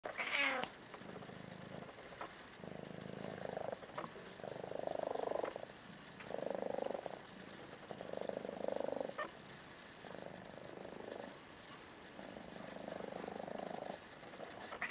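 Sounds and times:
kitten purring: 0:00.1 - 0:14.9.

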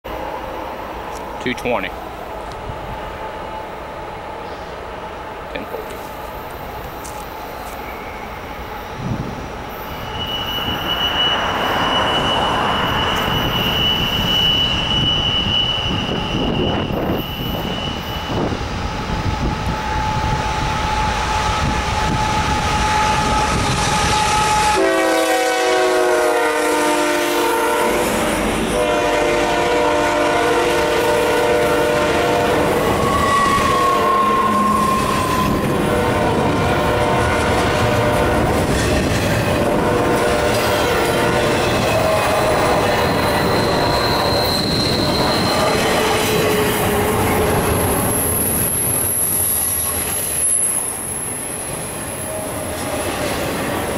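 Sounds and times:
train engines and wheels rumbling: 0:00.0 - 0:53.9
locomotive air horn chord: 0:21.6 - 0:35.0, 0:35.8 - 0:38.5, 0:39.7 - 0:42.8.

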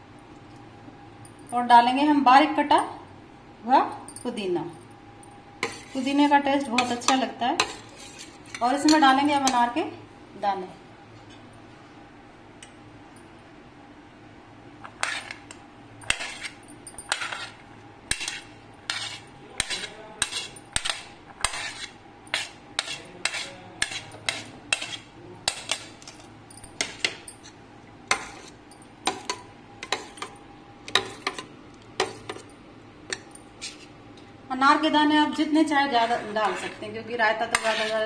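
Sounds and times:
metal spoon clinking on ceramic plate: 0:25.5 - 0:33.8.

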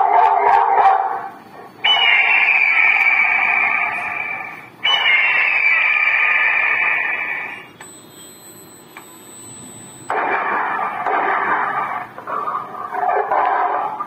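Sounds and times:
loudspeaker blaring harsh scare sound: 0:00.0 - 0:07.7
faint high steady whine: 0:00.0 - 0:14.0.

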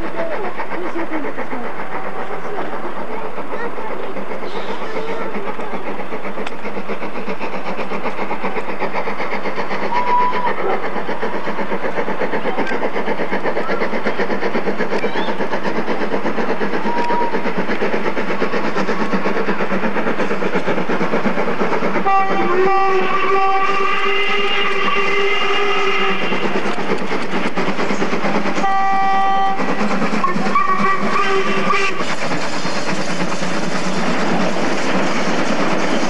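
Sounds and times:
steam locomotive exhaust beating: 0:00.0 - 0:36.0
steam whistle: 0:09.9 - 0:10.5, 0:22.0 - 0:26.5, 0:28.6 - 0:29.6, 0:30.2 - 0:32.0.

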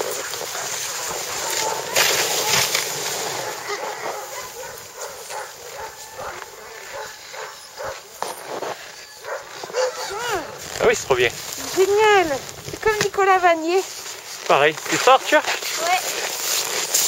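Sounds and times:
dogs barking and yelping: 0:00.0 - 0:11.0.

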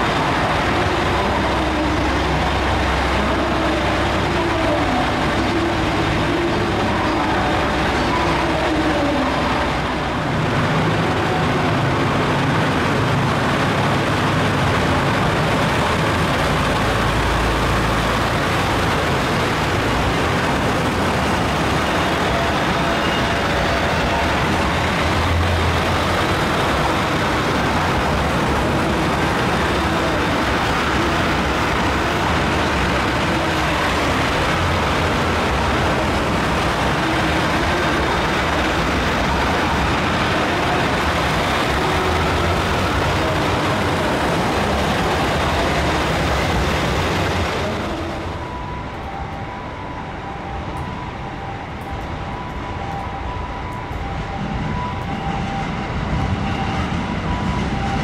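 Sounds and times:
diesel train engine drone: 0:00.0 - 0:58.0.

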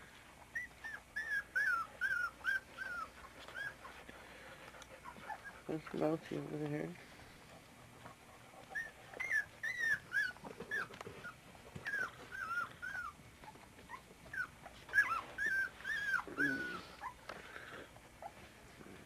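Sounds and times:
puppies whimpering and squealing: 0:00.4 - 0:06.0, 0:08.2 - 0:18.5
puppy lower rough cry: 0:16.0 - 0:17.1.

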